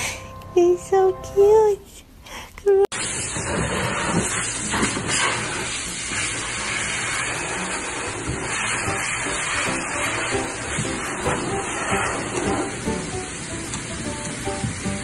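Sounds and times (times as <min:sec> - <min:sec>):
grooming dryer blowing air: 0:03.0 - 0:15.0.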